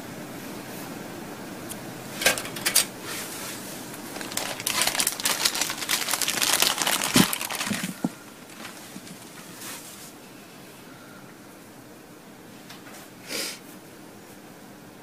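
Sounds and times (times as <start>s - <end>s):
crinkling rustling handling noise: 2.2s - 10.2s.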